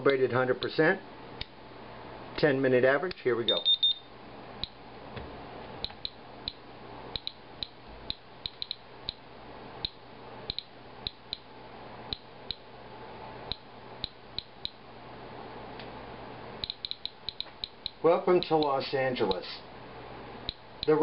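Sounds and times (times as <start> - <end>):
faint steady hum: 0.0 - 21.0
geiger counter clicking: 5.8 - 9.2, 9.8 - 11.5, 12.1 - 12.7, 13.5 - 14.8, 16.6 - 19.4, 20.5 - 21.0.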